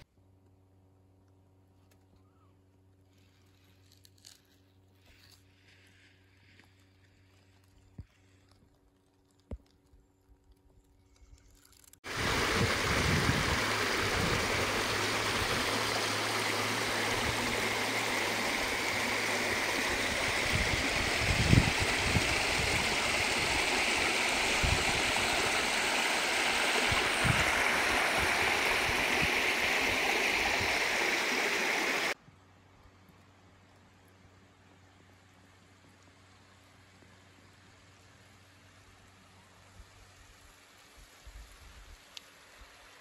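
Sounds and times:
stream rushing over stones: 12.0 - 32.2.

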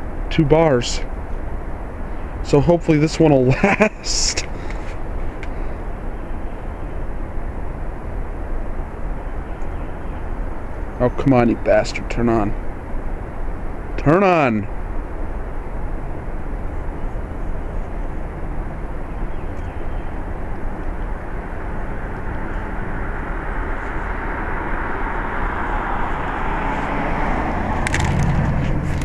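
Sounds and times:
traffic noise: 0.0 - 29.0
vehicle passing: 20.1 - 29.0.

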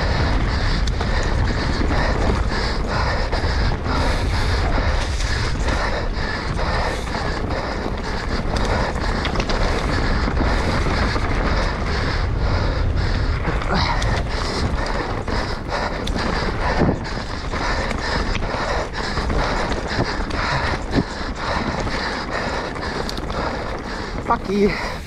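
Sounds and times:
tyres rolling over ground: 0.0 - 25.0
wind rushing over microphone: 0.0 - 25.0.

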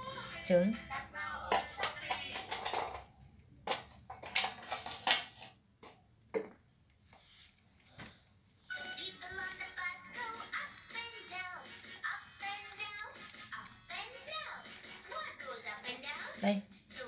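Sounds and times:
children's song: 0.0 - 2.8, 8.7 - 17.0.

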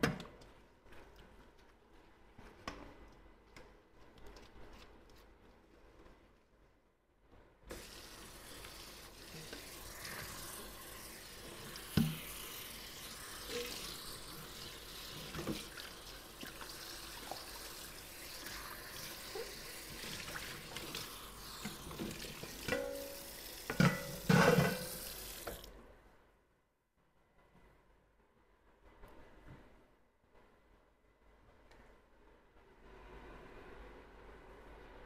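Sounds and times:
tap running into a sink: 11.6 - 12.6, 15.2 - 15.8, 21.6 - 25.7
dishes clattering: 22.7 - 25.0
dishes clinking: 22.7 - 25.0.

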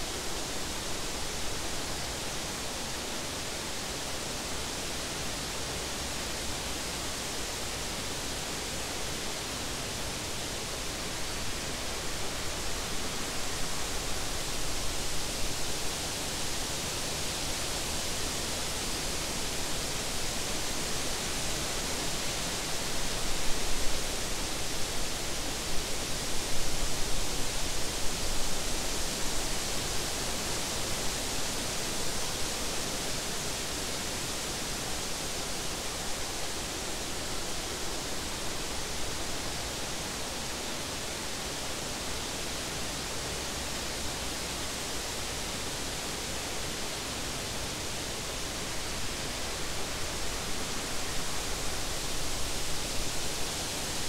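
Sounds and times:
wind rustling grass and leaves: 0.0 - 54.0.

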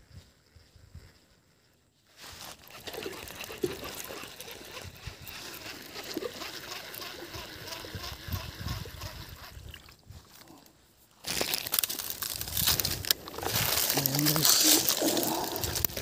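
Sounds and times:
water sloshing and trickling: 2.5 - 10.4.

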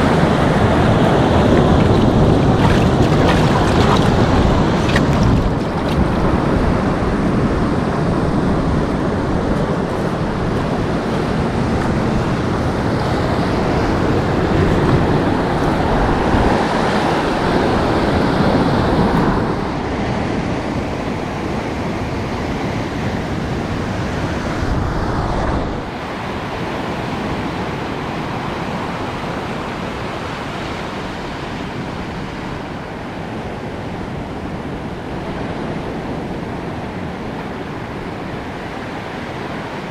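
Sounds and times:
sea surf breaking on rocks: 0.0 - 21.7
wind rumbling on microphone: 0.0 - 39.9.

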